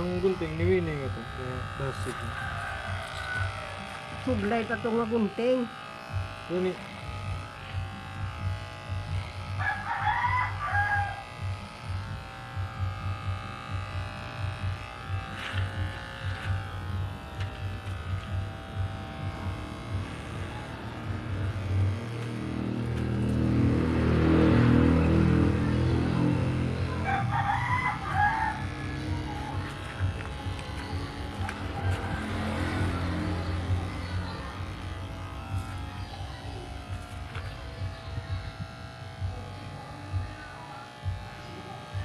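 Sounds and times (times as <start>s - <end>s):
electric hair clippers buzzing: 0.0s - 42.0s
rooster crowing: 2.3s - 3.9s, 9.6s - 11.3s, 27.0s - 29.0s, 31.4s - 33.2s
deep drone: 10.6s - 42.0s.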